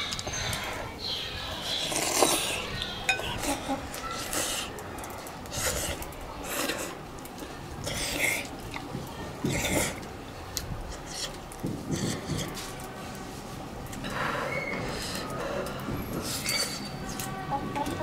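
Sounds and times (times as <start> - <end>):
person slurping: 1.6 - 4.7, 7.8 - 8.5, 9.4 - 10.0
person chewing: 7.8 - 12.9.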